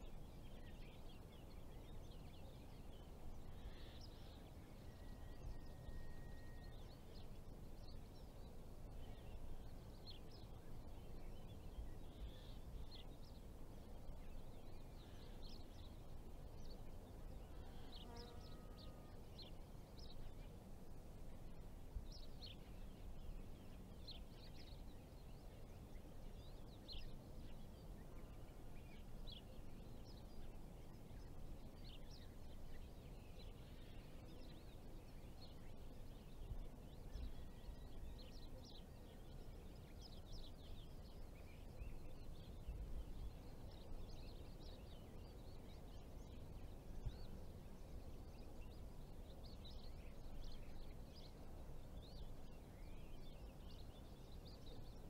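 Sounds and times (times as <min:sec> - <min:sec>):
small birds chirping: 0:00.0 - 0:55.0.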